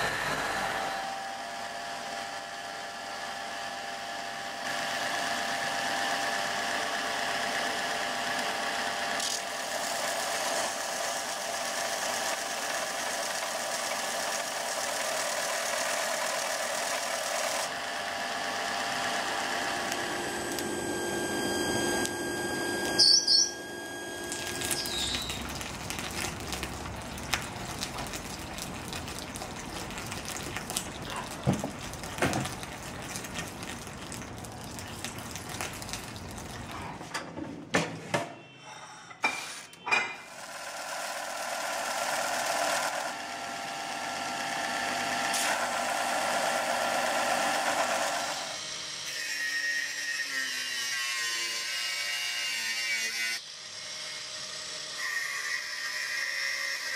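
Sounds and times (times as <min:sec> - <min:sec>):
belt grinder grinding blade: 0:06.1 - 0:25.6, 0:40.2 - 0:56.9.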